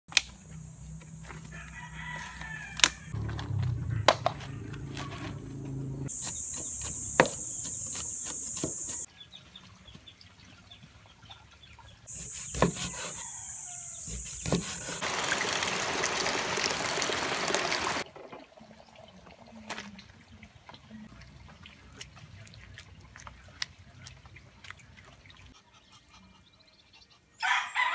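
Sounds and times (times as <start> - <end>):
outdoor cooking sounds: 0.1 - 27.9
roosters crowing: 1.2 - 4.9, 12.4 - 18.0, 27.4 - 27.9
high-pitched hiss: 6.1 - 9.1, 12.1 - 15.0.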